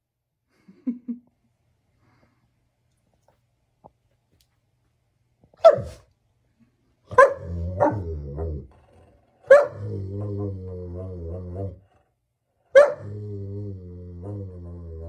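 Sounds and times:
dog barking: 5.6s - 6.0s, 7.1s - 8.0s, 9.4s - 9.9s, 12.7s - 13.1s
dog growling: 7.4s - 12.2s, 12.9s - 15.0s.

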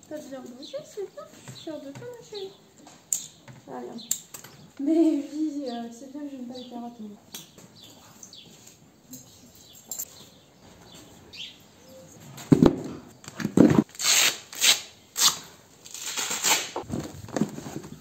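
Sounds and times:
rustling and scraping of gear: 16.0s - 18.0s.

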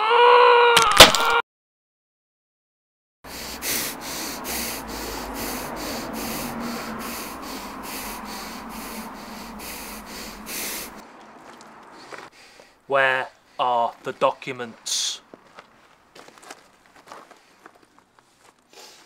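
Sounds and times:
rhythmic rasping strokes: 3.3s - 11.0s
low hum: 3.3s - 12.0s.

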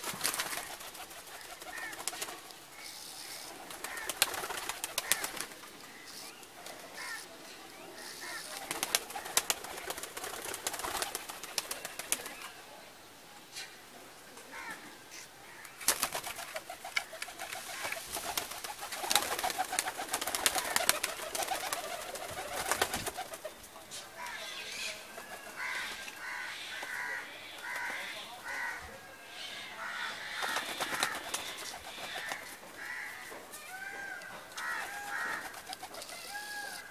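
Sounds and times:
pigeons cooing: 0.0s - 7.2s, 16.0s - 23.6s, 24.2s - 36.9s.

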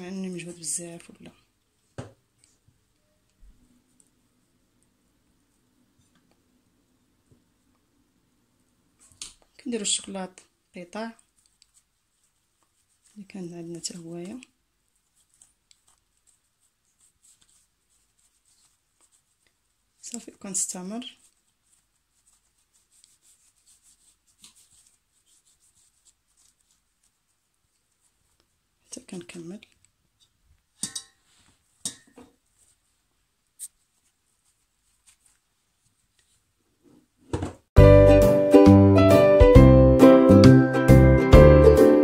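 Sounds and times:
hands rubbing dough: 8.9s - 29.4s, 30.0s - 37.2s.

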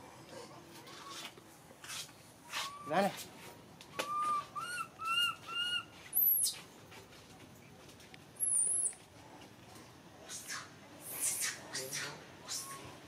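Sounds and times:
high thin monkey squeals: 4.0s - 6.6s, 10.3s - 13.0s
monkey coos: 10.3s - 13.0s.

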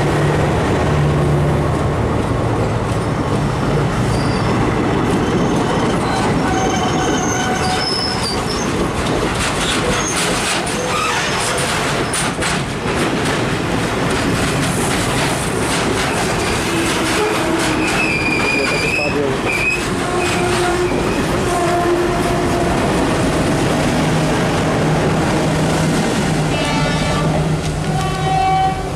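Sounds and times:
wheels clattering over rail joints: 5.0s - 21.4s
high-pitched flange squeals: 5.2s - 8.6s.

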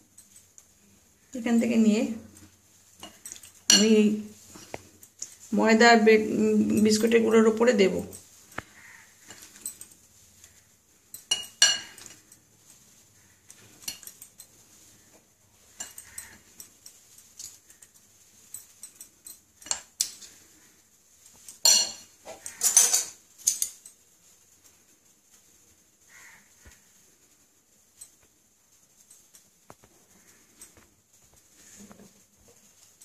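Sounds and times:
spoons clinking against glass bowls: 3.0s - 4.4s, 6.6s - 10.0s, 11.0s - 12.5s, 13.6s - 14.9s, 15.6s - 20.4s, 21.5s - 24.0s.

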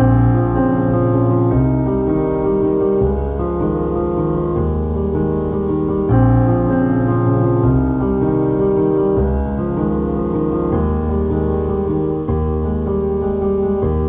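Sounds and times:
slow piano chords: 0.0s - 14.0s.

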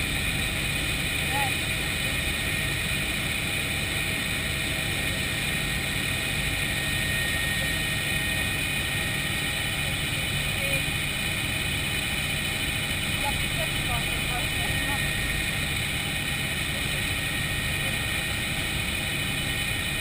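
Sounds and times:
helicopter turbine and rotor drone: 0.0s - 20.0s
thin high whine: 13.2s - 20.0s.

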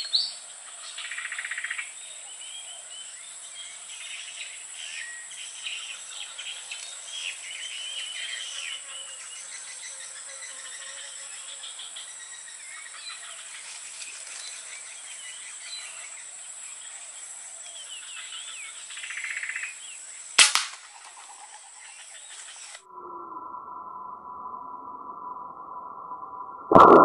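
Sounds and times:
gunshot: 20.4s - 20.8s
quieter crack: 26.6s - 27.0s.

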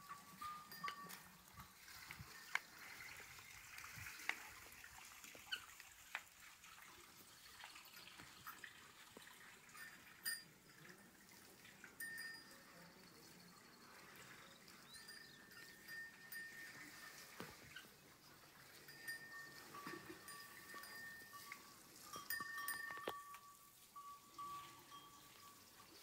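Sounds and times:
small metal bells ringing: 0.0s - 2.6s, 9.7s - 11.2s, 12.0s - 17.9s, 18.8s - 26.0s.

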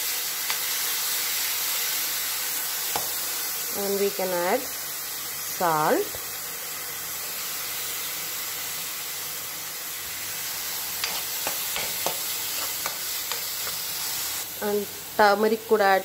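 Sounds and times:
onions sizzling in hot oil: 0.0s - 16.0s
steel spoon clicking on pan: 11.0s - 13.8s.

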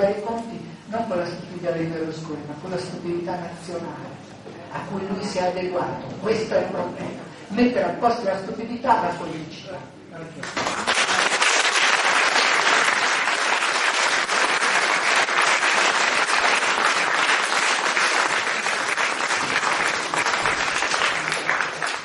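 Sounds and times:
audience applauding: 10.4s - 22.0s.

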